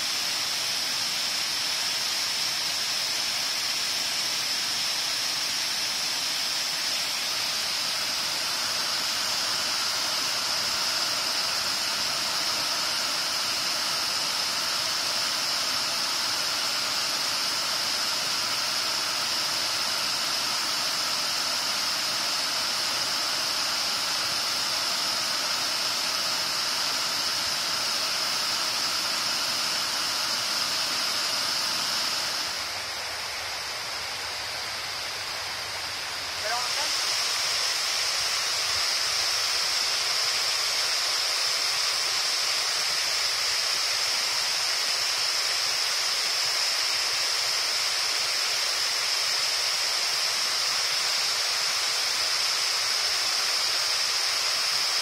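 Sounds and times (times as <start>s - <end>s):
waterfall rushing over rocks: 0.0s - 55.0s.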